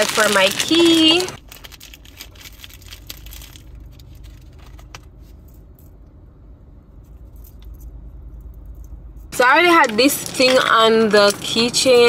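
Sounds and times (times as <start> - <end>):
low steady hum: 0.0 - 12.0
keyring clicks and clinks: 7.1 - 9.4.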